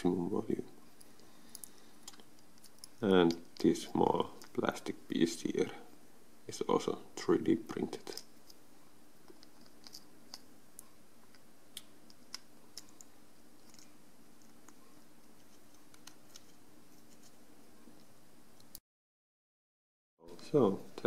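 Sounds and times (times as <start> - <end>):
faint steady hum: 0.0 - 18.8, 20.2 - 21.0
small parts clicking and scraping: 9.2 - 10.5, 12.1 - 14.8.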